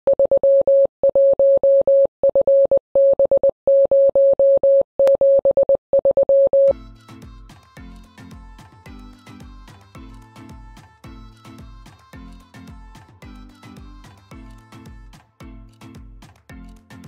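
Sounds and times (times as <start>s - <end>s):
morse code tone: 0.1s - 6.8s
electronic music with a beat: 6.7s - 17.0s.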